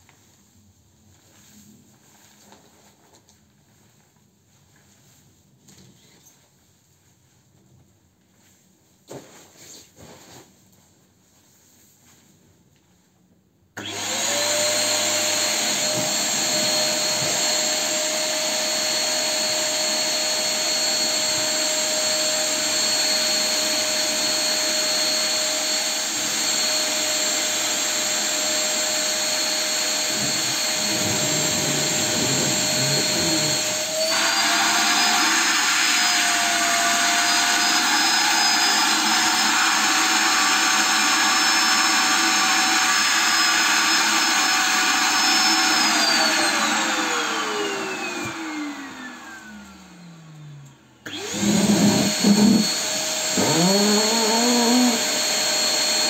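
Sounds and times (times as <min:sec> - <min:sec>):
vacuum cleaner whine: 0:13.8 - 0:56.0.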